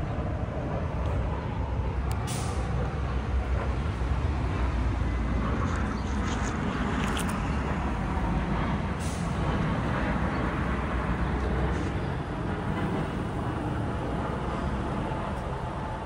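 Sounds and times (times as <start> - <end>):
heavy vehicle passing: 0.0 - 16.0.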